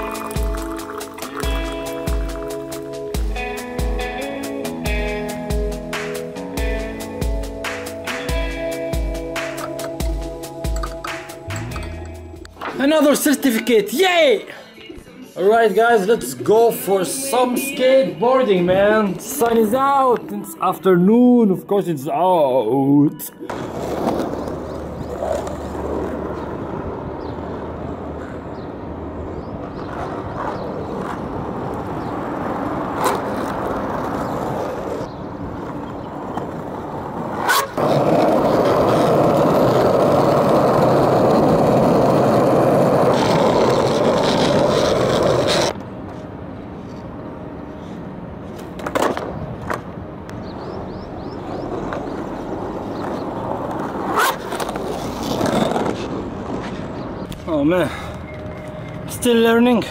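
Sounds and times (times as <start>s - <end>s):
skateboard wheels rolling on asphalt: 0.0s - 10.9s, 23.4s - 59.9s.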